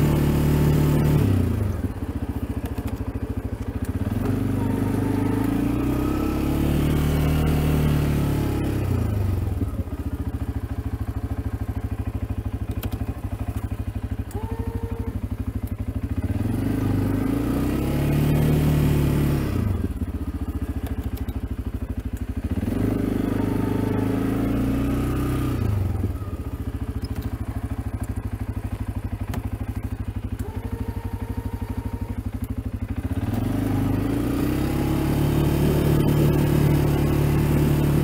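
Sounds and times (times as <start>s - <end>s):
atv engine revving: 0.0s - 38.0s.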